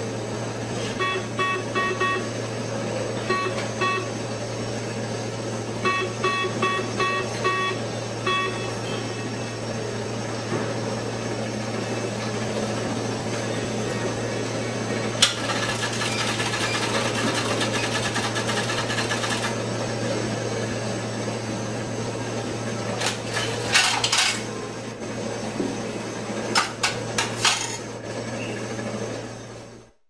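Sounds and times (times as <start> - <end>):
steady hum: 0.0 - 30.0
cash machine mechanism rattling: 15.3 - 19.6.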